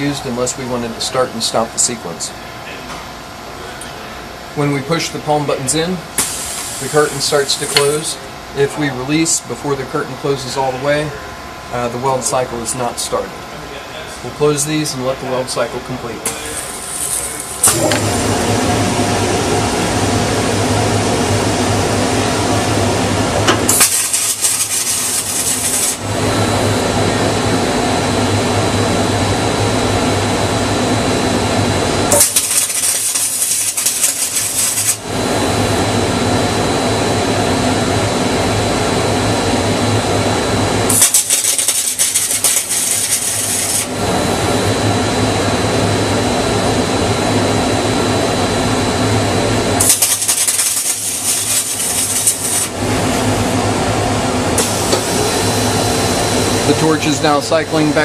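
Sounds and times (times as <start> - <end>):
machine hum: 0.0 - 58.0
welding arc hissing: 6.2 - 8.1, 16.3 - 18.6, 23.6 - 26.1, 32.1 - 35.1, 40.9 - 43.9, 49.8 - 53.3, 54.6 - 57.4.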